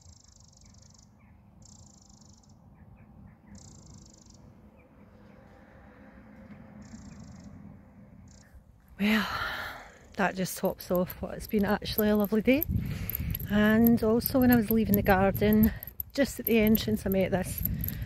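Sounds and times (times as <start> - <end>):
low steady rumble: 4.5 - 18.0.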